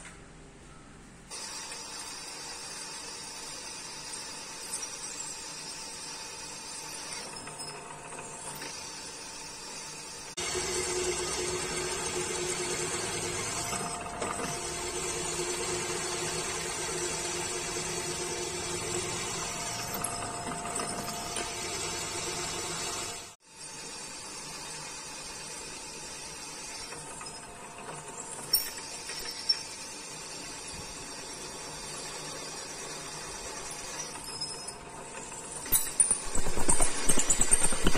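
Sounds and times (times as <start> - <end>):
milling machine drilling steel: 10.4 - 23.4.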